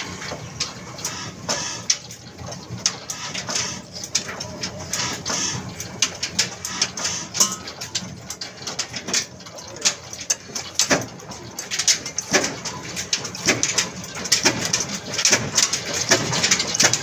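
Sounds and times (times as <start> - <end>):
diesel engine low hum: 0.0 - 13.2.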